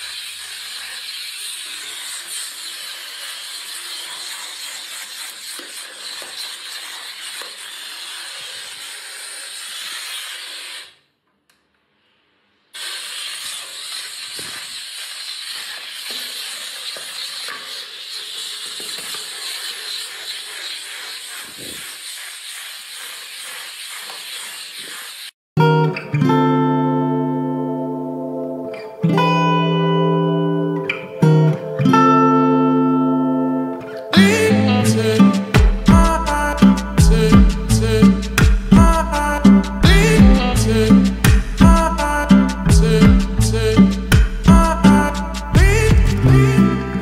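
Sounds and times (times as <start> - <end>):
steam cleaner hissing: 0.0 - 11.0, 12.8 - 25.4, 34.1 - 47.0.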